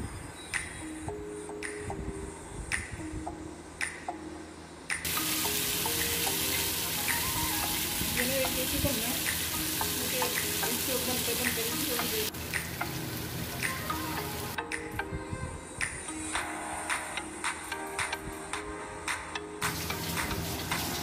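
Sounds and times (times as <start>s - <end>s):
steak sizzling on a grill pan: 5.1s - 12.3s.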